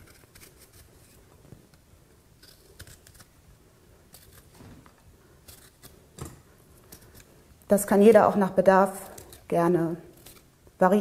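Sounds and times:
utensil scraping ginger skin: 0:00.0 - 0:01.3, 0:02.3 - 0:03.4, 0:04.1 - 0:04.6, 0:05.4 - 0:06.1, 0:08.8 - 0:10.5.

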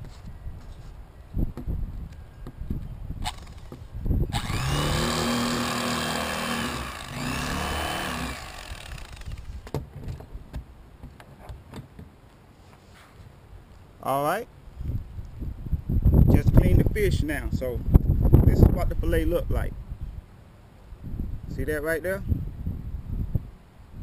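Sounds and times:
electric fillet knife running: 0:04.3 - 0:09.6.

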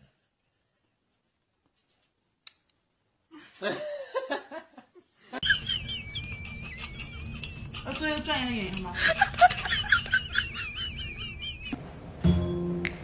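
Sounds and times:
person giggling: 0:03.3 - 0:11.8.

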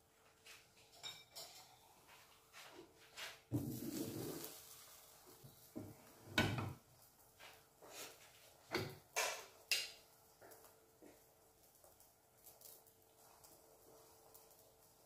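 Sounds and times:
frying pan shifted on grate: 0:03.5 - 0:06.8, 0:08.0 - 0:09.6
spatula knocking and scraping pan: 0:07.4 - 0:10.0.

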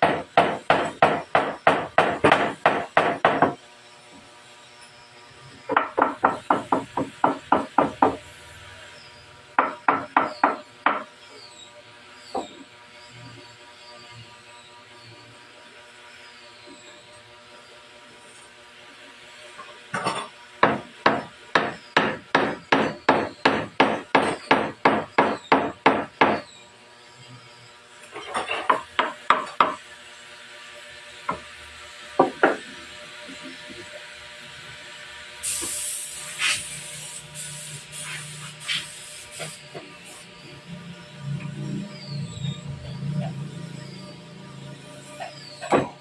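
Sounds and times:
hammer striking chisel: 0:00.0 - 0:03.6, 0:05.7 - 0:08.2, 0:09.6 - 0:11.1, 0:20.6 - 0:26.5, 0:28.6 - 0:29.8, 0:32.2 - 0:32.7.

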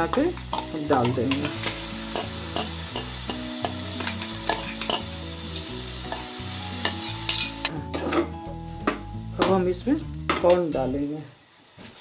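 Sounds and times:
spices sizzling in a pan: 0:00.0 - 0:12.0
spatula scraping metal: 0:06.8 - 0:08.3.

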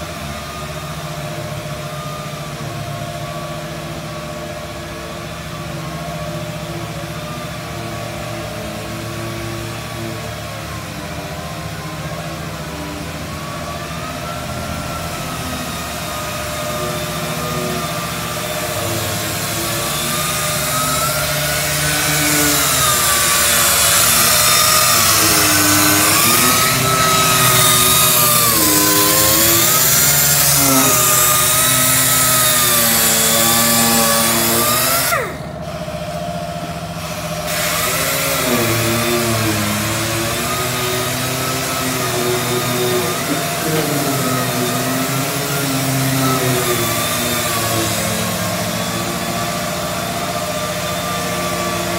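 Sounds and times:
disc grinder grinding metal: 0:18.8 - 0:35.4.

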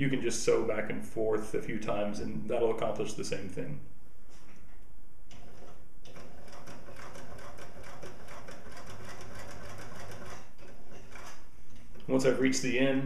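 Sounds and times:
sewing machine stitching: 0:05.3 - 0:11.5.

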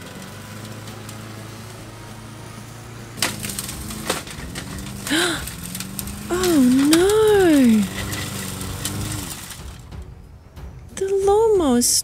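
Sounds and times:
mower blade cracking on twigs: 0:00.0 - 0:02.0, 0:03.2 - 0:09.9
clattering and ticking debris: 0:00.0 - 0:02.4, 0:03.1 - 0:10.2
lawn mower running: 0:00.0 - 0:10.0.

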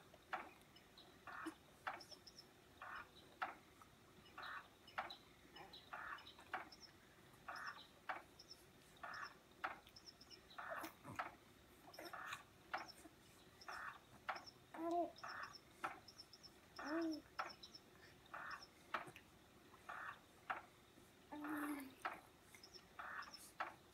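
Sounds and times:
faint high bird chirps: 0:04.2 - 0:11.2, 0:11.9 - 0:19.0.

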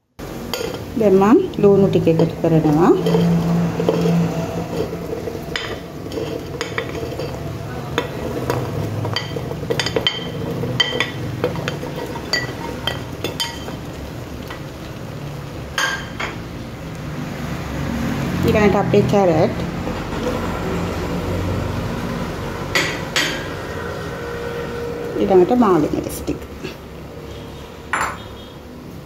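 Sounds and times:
ladle clinking on plate and pot: 0:08.0 - 0:13.8, 0:27.9 - 0:28.3.

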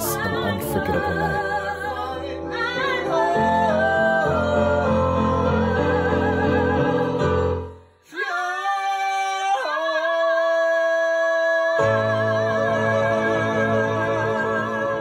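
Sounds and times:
musical accompaniment: 0:00.0 - 0:08.0
man and woman singing duet: 0:00.0 - 0:15.0.

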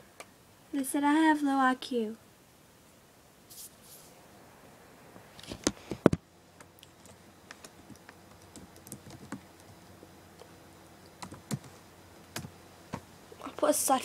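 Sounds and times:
light typing taps and clicks: 0:06.1 - 0:09.8.

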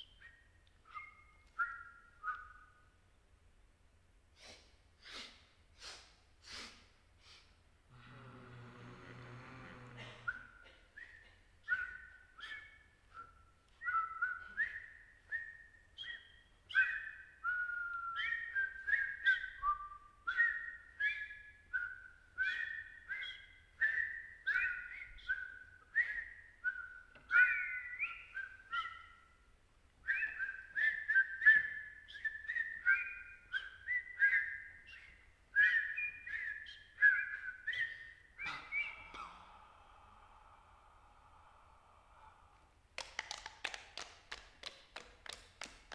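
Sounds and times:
people whistling high notes: 0:00.0 - 0:02.8, 0:10.2 - 0:29.3, 0:30.1 - 0:39.8.

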